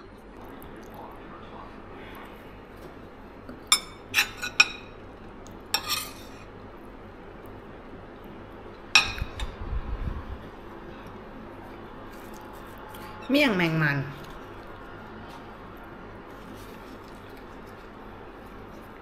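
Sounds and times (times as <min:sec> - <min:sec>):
cutlery clinking on plates: 0:03.7 - 0:05.0, 0:05.8 - 0:06.5.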